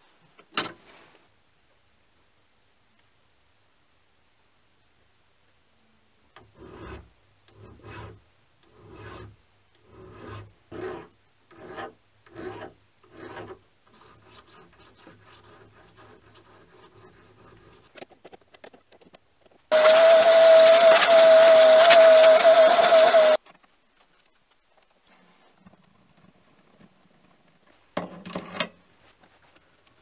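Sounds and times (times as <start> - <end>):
hand file strokes on metal: 6.4 - 17.9, 19.7 - 23.4
vacuum cleaner whine: 19.7 - 23.4.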